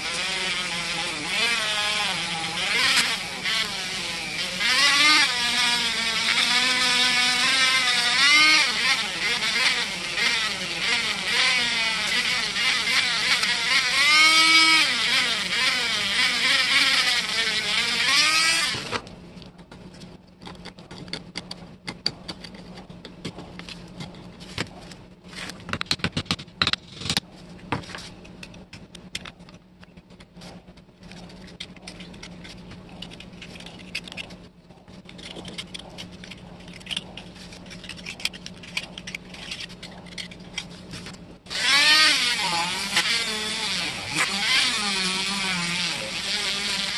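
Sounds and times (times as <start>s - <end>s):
rotary tool grinding metal: 0.0s - 19.0s, 35.0s - 40.8s, 41.5s - 46.9s
blade scraped by hand: 30.4s - 46.9s.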